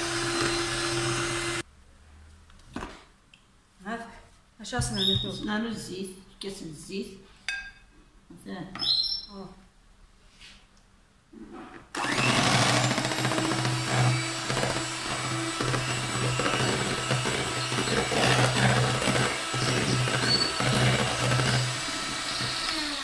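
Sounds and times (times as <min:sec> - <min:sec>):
electric hand mixer running: 0:00.0 - 0:01.6, 0:12.0 - 0:23.0.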